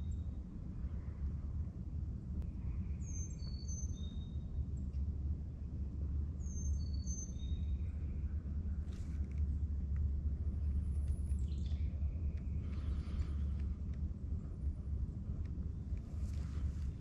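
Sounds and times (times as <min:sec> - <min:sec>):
low rumble: 0:07.6 - 0:17.0.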